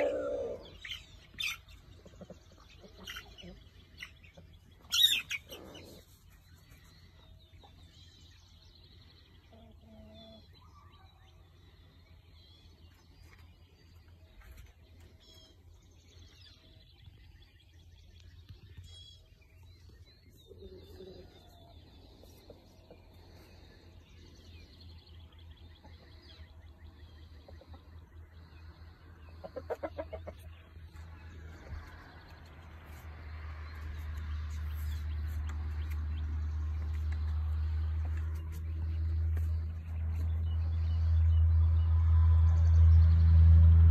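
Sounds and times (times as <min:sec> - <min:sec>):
chickens clucking: 0:00.0 - 0:08.0, 0:09.3 - 0:11.0, 0:19.8 - 0:33.1.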